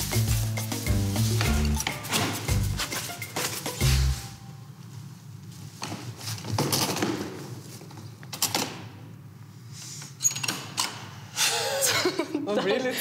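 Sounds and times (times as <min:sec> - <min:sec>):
rustling of coveralls and straw: 0:00.0 - 0:06.5.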